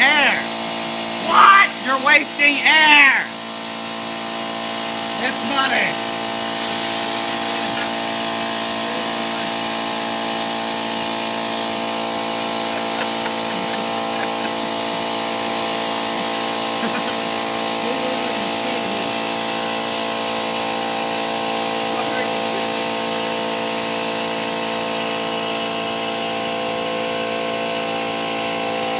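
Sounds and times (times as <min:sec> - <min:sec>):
air compressor humming: 0:00.0 - 0:28.9
compressed air hissing from hose: 0:06.4 - 0:20.4.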